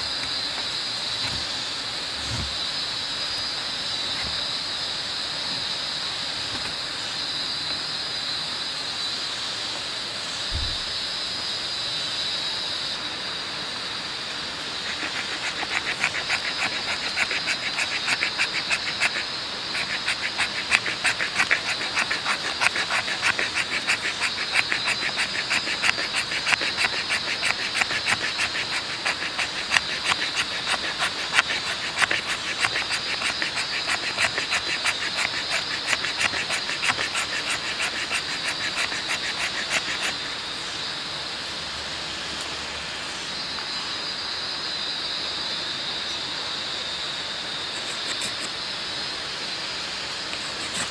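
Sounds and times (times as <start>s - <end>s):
knife scraping wood: 0.0s - 2.7s, 4.0s - 4.6s, 14.7s - 40.4s, 47.7s - 48.6s, 50.3s - 50.9s
high insect drone: 0.0s - 50.9s.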